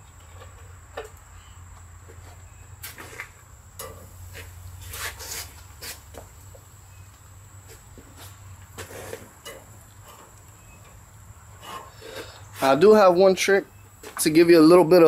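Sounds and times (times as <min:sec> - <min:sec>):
metal clattering on metal grate: 0:03.8 - 0:04.1, 0:08.8 - 0:10.4.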